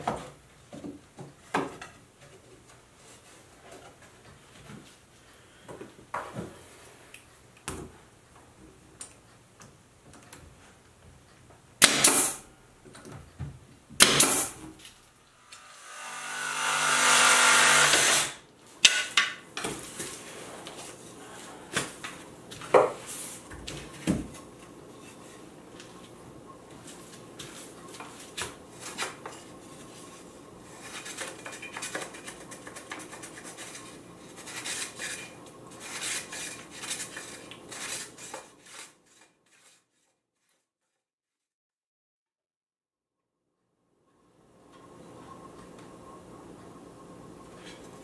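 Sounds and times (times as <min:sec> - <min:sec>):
jigsaw cutting wood: 0:15.6 - 0:18.4.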